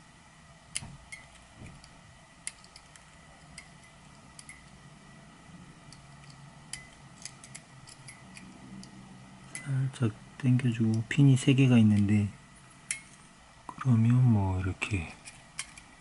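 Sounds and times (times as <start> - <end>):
small metal clicks and ticks: 0.7 - 4.8, 5.9 - 9.8, 12.8 - 13.2, 15.1 - 16.0.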